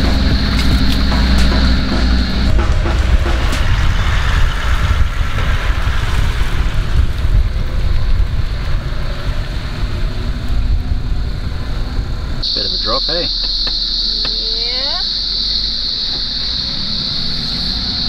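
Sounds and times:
tyres rolling over dirt and stones: 0:00.0 - 0:12.4
deep engine rumble: 0:00.0 - 0:18.0.

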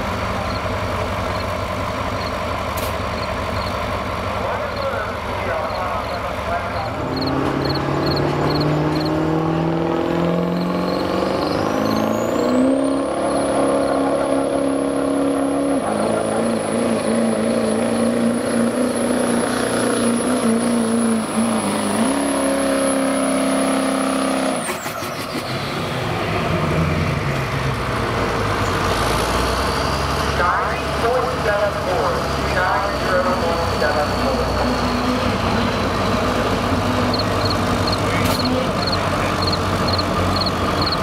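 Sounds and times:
diesel pickup engine at full throttle: 0:00.0 - 0:41.0
turbocharger whistle: 0:10.5 - 0:14.1, 0:37.1 - 0:41.0.

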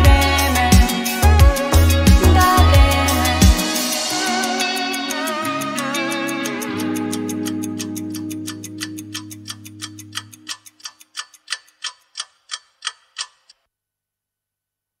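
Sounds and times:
clock-like ticking: 0:05.6 - 0:13.7.

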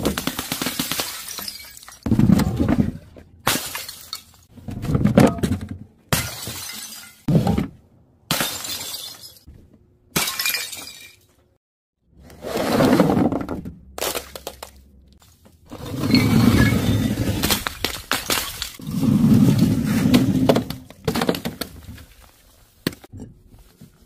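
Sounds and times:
bottles smashing on stone: 0:00.0 - 0:04.4, 0:05.2 - 0:07.4, 0:08.3 - 0:09.5, 0:10.2 - 0:11.2, 0:16.4 - 0:18.9.

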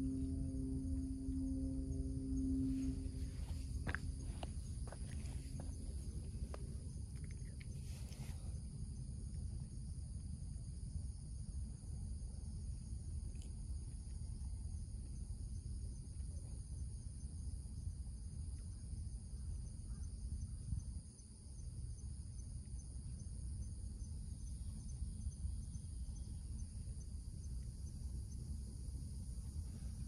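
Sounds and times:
insect chorus buzzing and chirping: 0:00.0 - 0:30.0
low outdoor rumble: 0:00.0 - 0:30.0.

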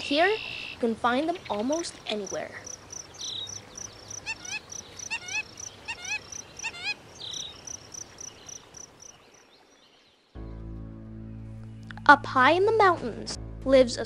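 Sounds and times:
insect chirping: 0:00.0 - 0:10.0
rising and falling animal call: 0:01.4 - 0:08.8.

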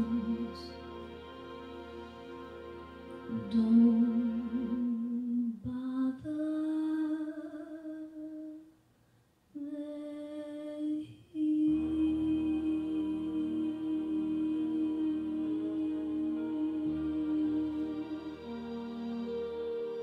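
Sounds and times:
slow melody of held notes: 0:00.0 - 0:06.0, 0:11.4 - 0:20.0.

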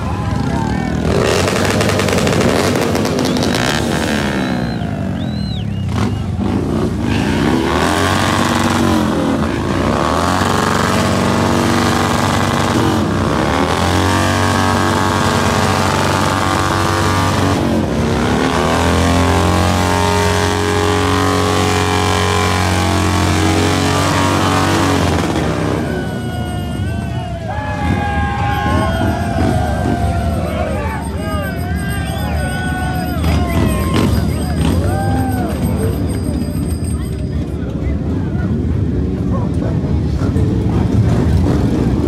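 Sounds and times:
motorcycle engine revving: 0:00.5 - 0:27.0, 0:27.8 - 0:31.2.

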